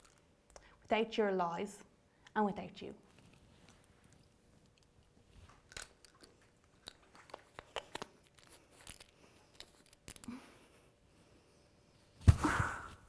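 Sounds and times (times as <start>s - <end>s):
small clicks and crunches: 3.0s - 10.4s
swallowing and chewing: 5.4s - 8.1s.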